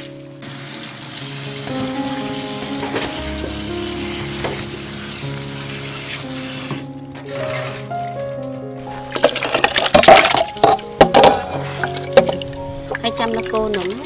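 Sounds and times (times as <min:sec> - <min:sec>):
tap water running: 0:00.0 - 0:07.9, 0:08.9 - 0:14.0
background music: 0:00.0 - 0:14.0.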